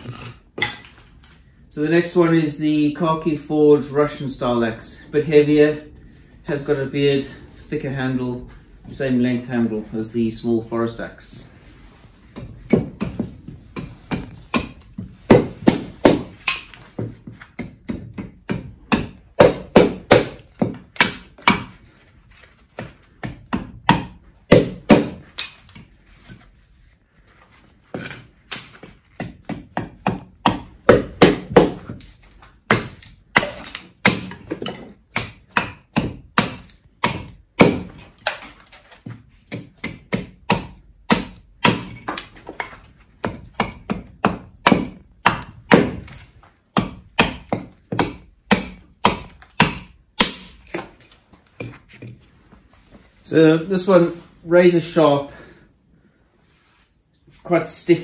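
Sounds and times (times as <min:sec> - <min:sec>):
axe striking wood: 0:12.3 - 0:21.8, 0:22.8 - 0:25.9, 0:27.9 - 0:52.1.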